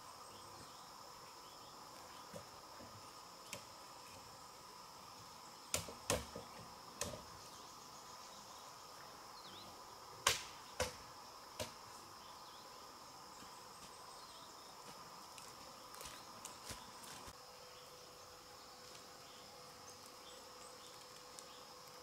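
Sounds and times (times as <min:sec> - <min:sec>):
insect drone: 0:00.0 - 0:22.0
blade chopping bamboo: 0:05.7 - 0:06.4, 0:10.2 - 0:11.0.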